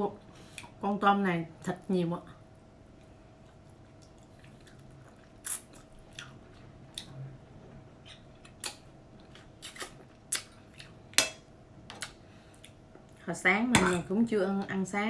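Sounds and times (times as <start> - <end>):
person chewing with lip smacks: 3.0 - 7.2, 8.0 - 11.0.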